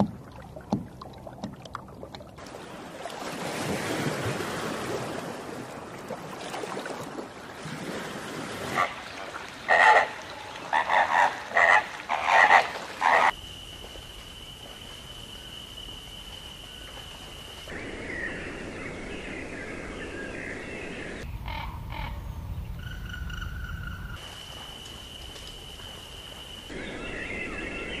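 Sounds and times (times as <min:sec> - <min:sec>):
birds chirping: 0:17.7 - 0:24.2, 0:25.8 - 0:28.0.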